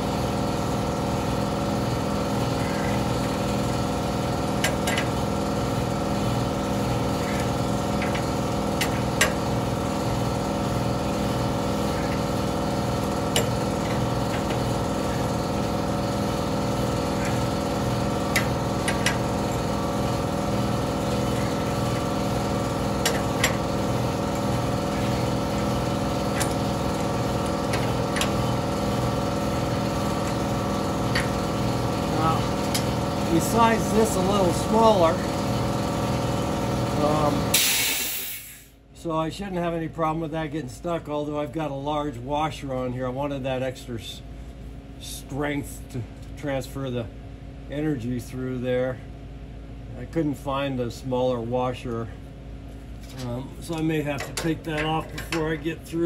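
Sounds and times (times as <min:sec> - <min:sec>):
motor hum: 0:00.0 - 0:37.6.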